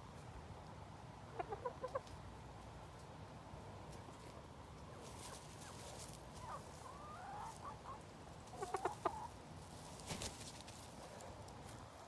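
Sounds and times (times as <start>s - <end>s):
hens clucking: 1.3s - 2.1s, 4.8s - 11.2s.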